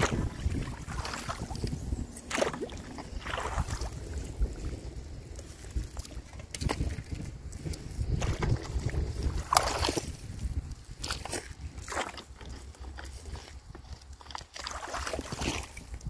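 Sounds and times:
pole splashing in water: 0.0s - 4.4s, 8.1s - 10.2s, 11.0s - 12.5s, 14.3s - 16.0s
steady low rumble: 0.0s - 12.5s.

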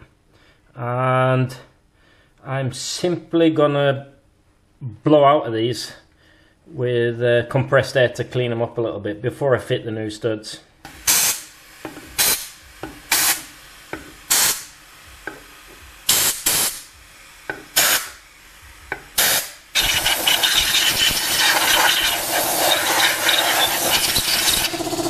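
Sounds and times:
compressed air blasts: 10.9s - 25.0s
loud steady machine noise: 12.2s - 25.0s.

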